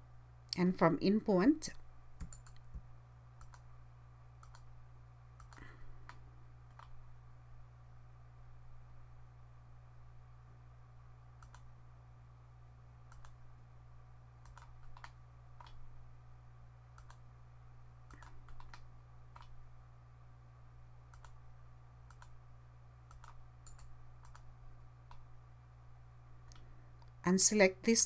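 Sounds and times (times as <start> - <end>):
steady low hum: 0.0 - 28.0
computer mouse clicks: 2.2 - 2.8, 3.4 - 3.7, 4.4 - 4.7, 5.4 - 7.0, 11.4 - 11.7, 13.1 - 13.4, 14.4 - 15.8, 16.9 - 17.2, 18.1 - 19.6, 21.1 - 21.4, 22.0 - 22.4, 23.1 - 24.5.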